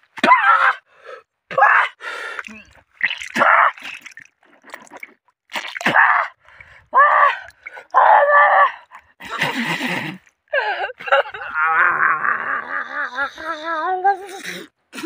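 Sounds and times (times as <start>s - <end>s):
man groaning and crying out: 11.1s - 14.6s.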